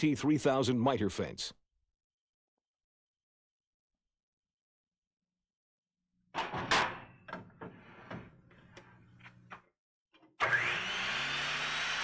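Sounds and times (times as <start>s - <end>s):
table saw motor whining: 10.3s - 12.0s.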